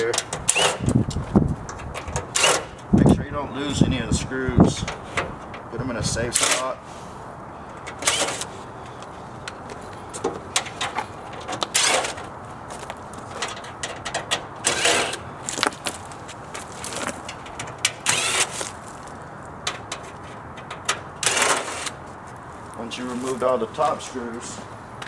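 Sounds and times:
cordless drill whirring: 18.0s - 18.6s.

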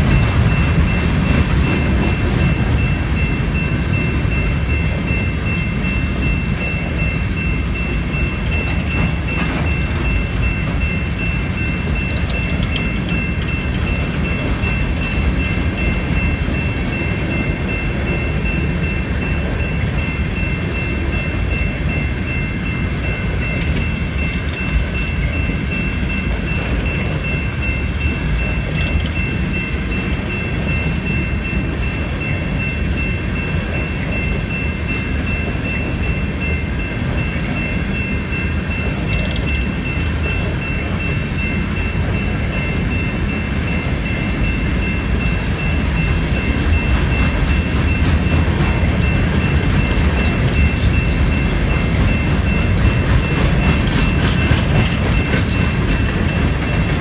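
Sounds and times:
high-pitched ringing tones: 0.0s - 57.0s
train wheels rumbling on rail: 0.0s - 57.0s.

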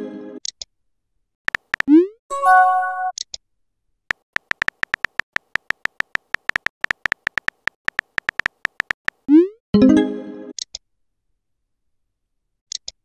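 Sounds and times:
phone keyboard key clicks: 1.5s - 1.9s, 4.1s - 9.2s.

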